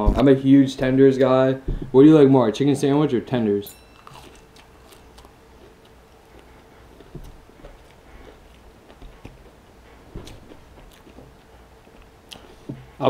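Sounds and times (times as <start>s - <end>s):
chewing food close-up: 4.0s - 12.8s.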